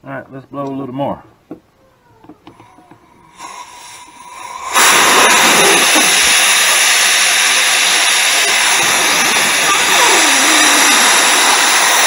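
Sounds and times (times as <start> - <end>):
compressed-air blow gun hissing: 2.5 - 12.0.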